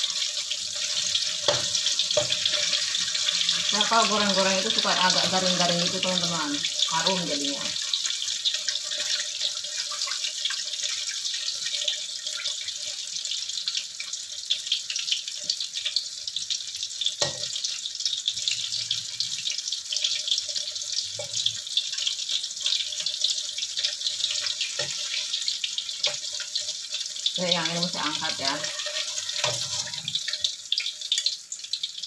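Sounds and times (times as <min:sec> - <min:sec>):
food deep-frying in oil: 0:00.0 - 0:32.0
metal spatula knocking wok: 0:01.4 - 0:02.8, 0:17.2 - 0:17.6.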